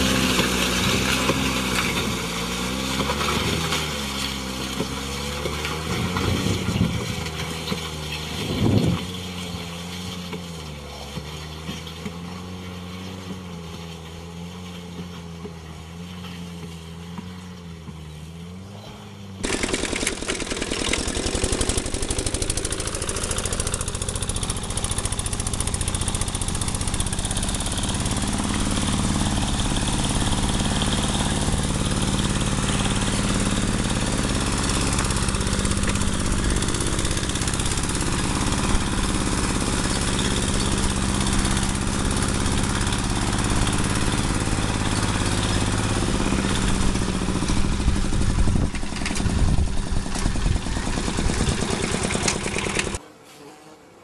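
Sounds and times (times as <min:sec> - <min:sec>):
small tractor engine running: 0:00.0 - 0:53.0.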